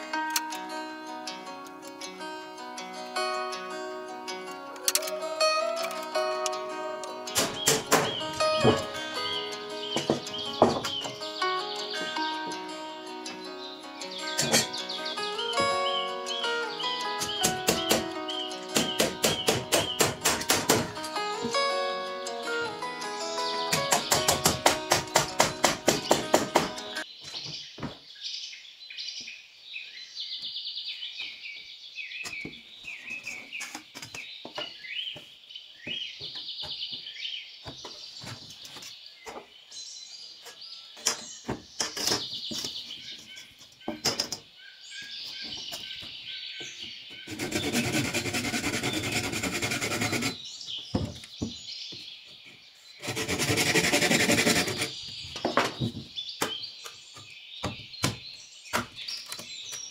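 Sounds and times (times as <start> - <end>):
birds chirping: 3.1 - 59.9
knocks and taps of building work: 7.3 - 8.9, 10.0 - 11.2, 17.2 - 18.1, 18.7 - 21.6, 23.7 - 28.0, 32.2 - 32.6, 33.3 - 39.5, 40.4 - 44.5, 50.9 - 53.6, 54.4 - 59.8.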